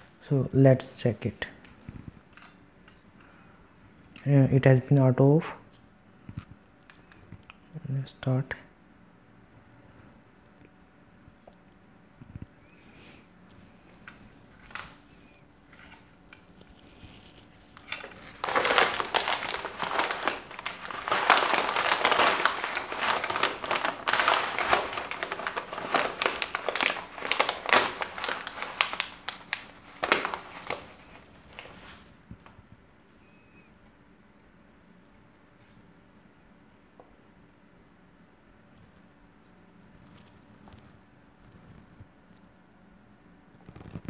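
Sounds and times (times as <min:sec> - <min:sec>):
plastic food packet crinkling: 0:15.8 - 0:31.9.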